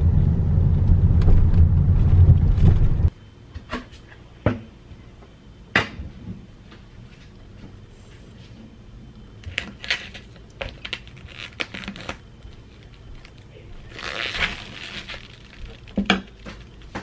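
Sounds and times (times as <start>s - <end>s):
plastic wrap crinkling: 9.5s - 17.0s
plastic wrap rustling: 9.5s - 17.0s.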